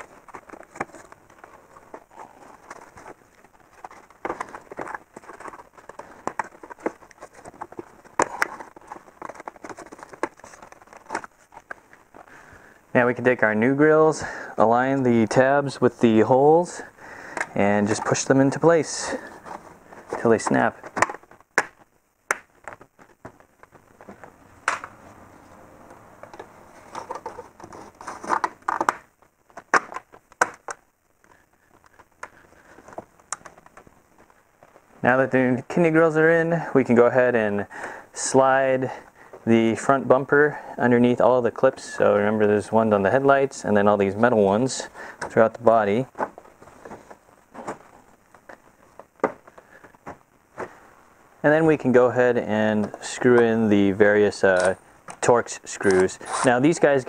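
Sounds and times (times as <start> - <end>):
gloved hands rustling on plastic: 0.0 - 12.7, 17.0 - 25.7.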